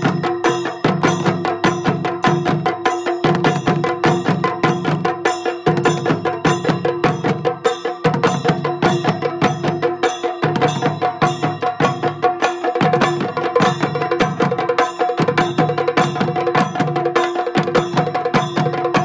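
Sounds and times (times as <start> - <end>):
drums beaten with sticks: 0.0 - 19.0
small hand cymbals ringing: 0.0 - 19.0.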